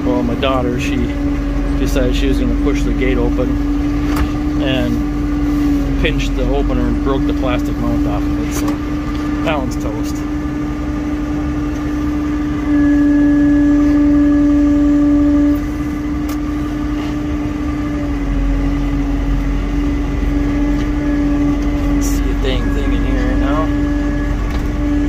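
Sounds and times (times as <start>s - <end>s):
tractor engine from inside cab: 0.0s - 25.0s.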